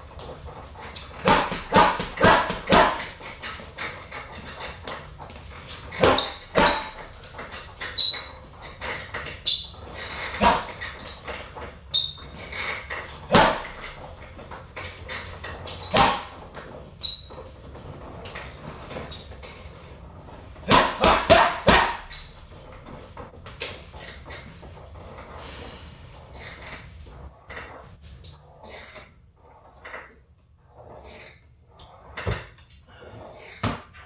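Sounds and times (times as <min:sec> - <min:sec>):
gloves punching heavy bag: 0:01.2 - 0:03.2, 0:10.4 - 0:10.8, 0:15.8 - 0:16.4, 0:20.6 - 0:22.1
short high squeaks: 0:06.0 - 0:13.9, 0:17.0 - 0:17.6, 0:21.8 - 0:22.8.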